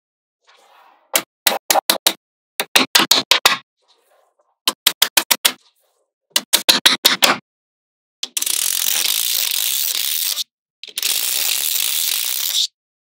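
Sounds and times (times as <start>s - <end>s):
magnetic balls clicking together: 8.2s - 12.7s.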